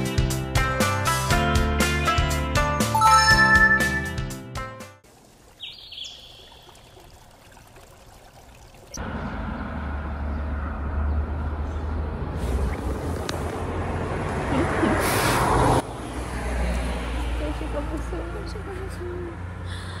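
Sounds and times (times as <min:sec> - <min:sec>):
background music: 0:00.0 - 0:05.0.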